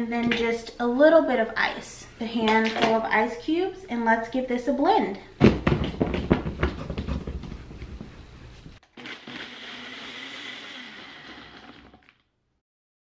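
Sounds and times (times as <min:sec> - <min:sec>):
blender motor crushing ice: 0:08.8 - 0:12.2.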